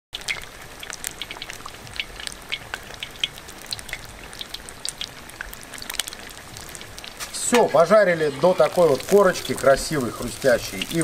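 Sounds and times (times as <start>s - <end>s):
pork deep-frying in oil: 0.1s - 11.0s.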